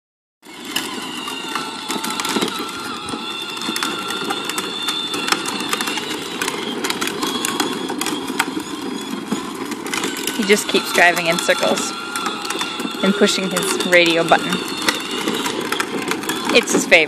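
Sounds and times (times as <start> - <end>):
electric motor whine: 0.4 - 17.0
plastic wheels rumbling on asphalt: 0.4 - 17.0.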